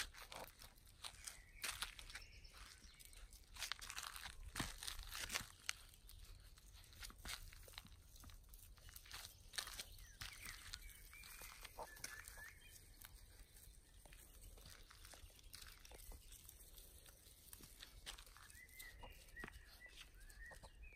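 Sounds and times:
light ticking and scratching: 0:00.0 - 0:20.9
puppies squeaking: 0:09.1 - 0:13.0.

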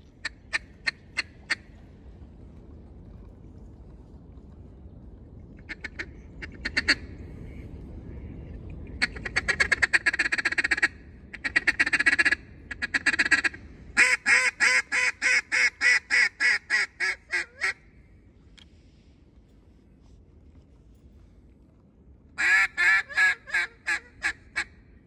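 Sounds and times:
duck call quacking: 0:05.7 - 0:07.0, 0:09.0 - 0:17.8, 0:22.4 - 0:24.7.

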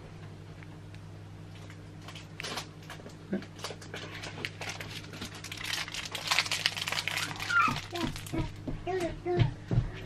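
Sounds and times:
steady low hum: 0:00.0 - 0:10.0
plastic wrapper crinkling: 0:01.5 - 0:08.6.

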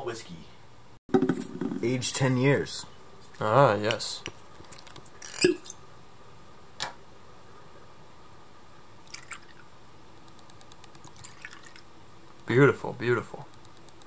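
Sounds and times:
liquid pouring: 0:09.1 - 0:09.6, 0:11.1 - 0:11.9
liquid dripping: 0:10.3 - 0:11.9.

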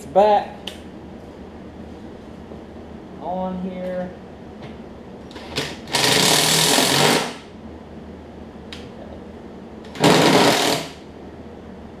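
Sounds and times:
cordless impact driver hammering: 0:10.0 - 0:11.0.

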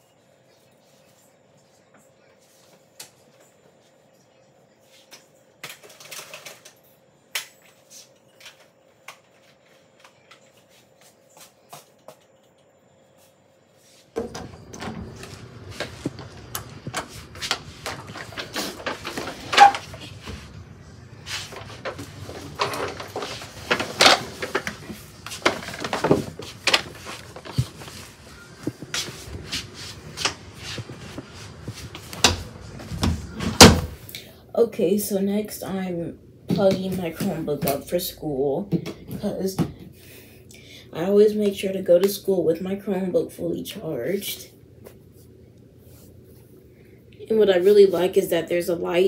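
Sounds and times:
closet door opening: 0:14.2 - 0:20.6, 0:21.3 - 0:29.1, 0:30.1 - 0:34.0
footsteps: 0:21.2 - 0:33.9.

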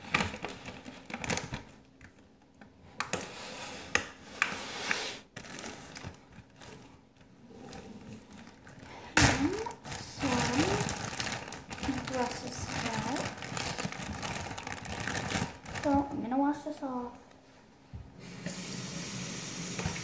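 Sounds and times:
plastic bag rustle: 0:00.0 - 0:01.8, 0:05.2 - 0:07.2, 0:07.9 - 0:16.8.

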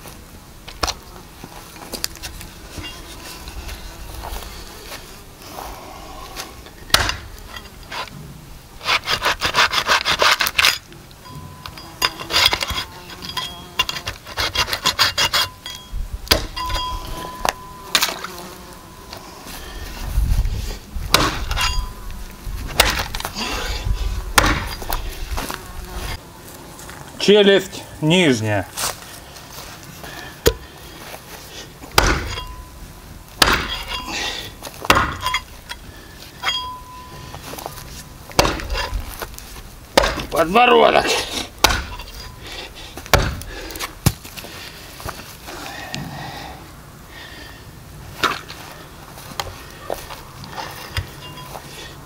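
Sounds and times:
hatchet chopping on wooden block: 0:06.9 - 0:07.3, 0:16.3 - 0:16.6, 0:21.1 - 0:21.5, 0:24.4 - 0:24.8, 0:32.0 - 0:32.4, 0:33.4 - 0:33.9, 0:34.9 - 0:35.2, 0:38.4 - 0:38.8, 0:40.0 - 0:40.3, 0:41.6 - 0:42.0, 0:43.1 - 0:43.5.

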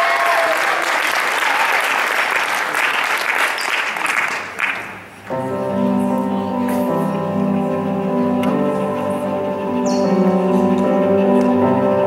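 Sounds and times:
people whooping: 0:00.0 - 0:02.1
audience applauding: 0:00.0 - 0:05.3.

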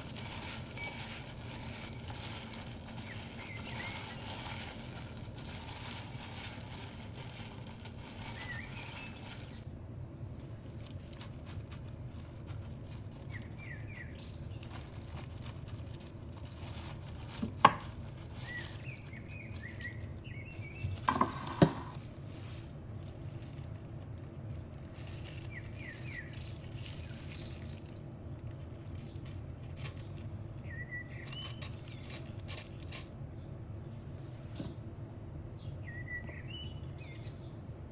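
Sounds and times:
rustling of glove and crumbs: 0:00.0 - 0:33.2.

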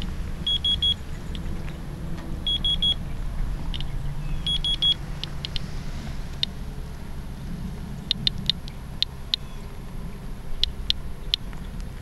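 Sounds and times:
high beeps: 0:00.0 - 0:01.0, 0:02.4 - 0:03.0, 0:03.7 - 0:05.6
low rumble: 0:00.0 - 0:12.0
geiger counter clicking: 0:04.5 - 0:05.6, 0:08.1 - 0:09.4.

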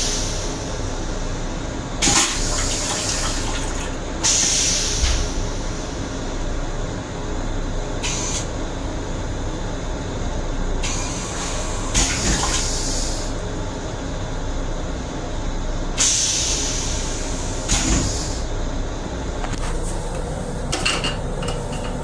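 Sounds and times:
toilet rinse water spraying: 0:02.0 - 0:04.7.

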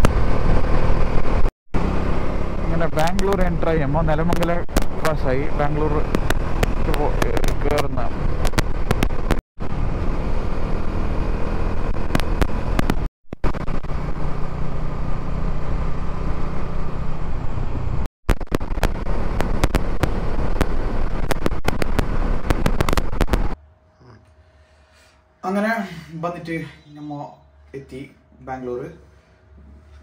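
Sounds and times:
motorcycle engine running: 0:00.0 - 0:23.6
wind and road noise: 0:00.0 - 0:23.6
sharp clicks: 0:04.2 - 0:05.3, 0:06.0 - 0:09.4, 0:18.3 - 0:23.6.

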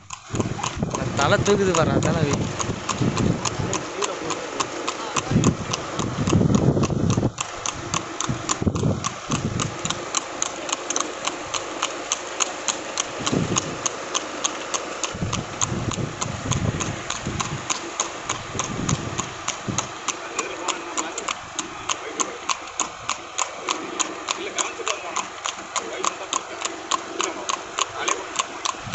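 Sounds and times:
horse hooves clip-clopping on asphalt: 0:00.0 - 0:28.9.

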